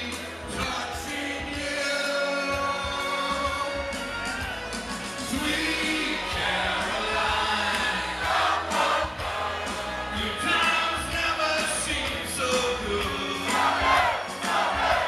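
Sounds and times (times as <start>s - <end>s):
man singing into a microphone: 0.0s - 4.6s, 5.2s - 8.0s, 10.1s - 14.0s
backing music: 0.0s - 15.0s
crowd noise: 0.0s - 15.0s
group voices: 5.3s - 11.1s, 13.4s - 15.0s.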